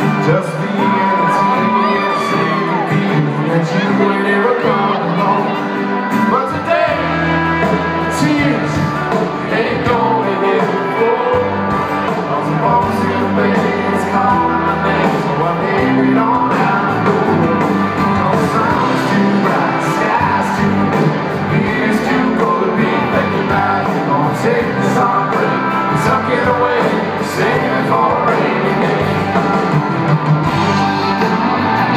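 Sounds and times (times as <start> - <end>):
man singing lead vocal: 0.0 - 29.8
country-rock band playing: 0.0 - 31.9.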